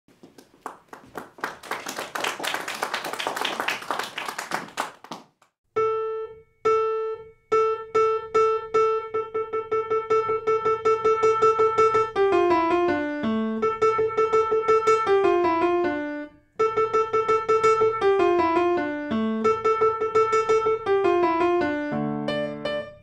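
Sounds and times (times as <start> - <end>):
audience applauding: 0.1 - 5.4.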